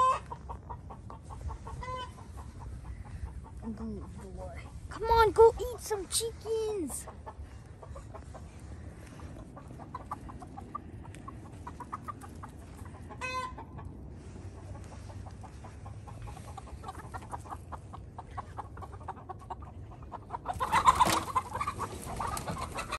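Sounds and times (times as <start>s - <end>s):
chickens clucking: 0.0s - 22.9s
chickens squawking: 0.0s - 22.9s.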